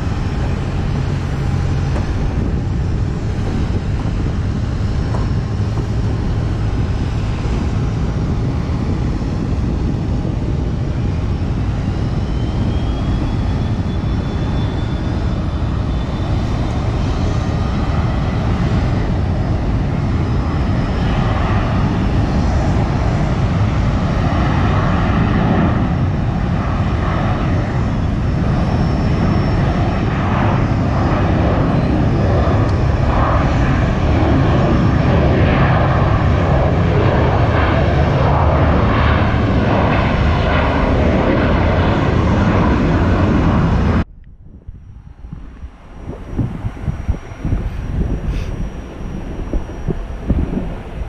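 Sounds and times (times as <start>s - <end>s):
jet engines roaring at takeoff: 0.0s - 51.0s.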